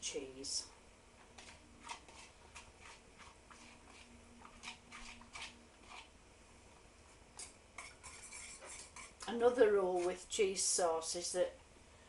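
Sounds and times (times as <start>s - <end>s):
soft scrapes and taps in bowl: 1.2s - 6.1s, 7.0s - 9.4s.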